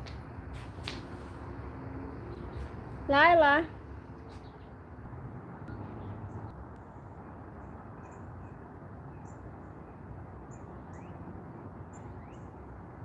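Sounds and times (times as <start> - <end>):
birds chirping: 2.2 - 6.5, 7.6 - 12.6.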